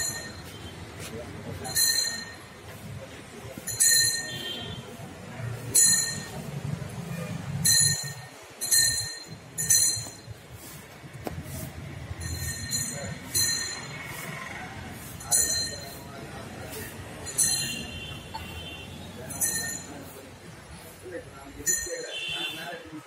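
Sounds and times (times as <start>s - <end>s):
small metal bell strokes: 7.6s - 10.9s, 11.6s - 14.2s, 15.0s - 18.0s, 19.3s - 20.3s, 21.6s - 22.1s.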